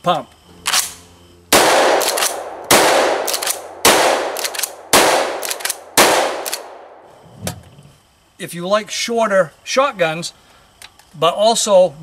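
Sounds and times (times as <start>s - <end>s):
shotgun shots: 0.7s - 7.0s
shotgun pump clacks: 2.0s - 2.4s, 3.2s - 3.6s, 4.3s - 5.8s, 6.4s - 6.7s.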